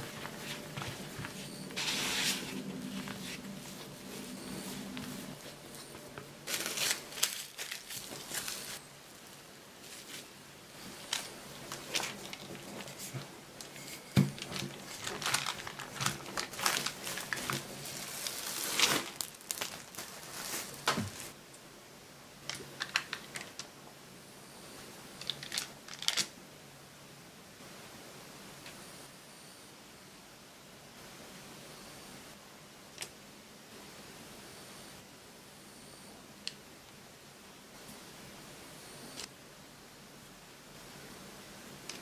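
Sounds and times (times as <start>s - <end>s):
plastic wrap crinkling: 0.0s - 21.4s, 22.5s - 23.7s, 25.2s - 26.3s.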